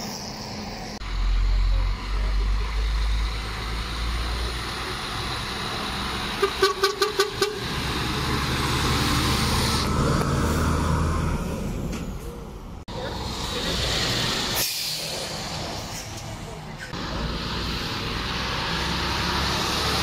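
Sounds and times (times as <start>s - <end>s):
lorry engines running: 0.0s - 20.0s
truck horn tooting: 6.3s - 7.8s.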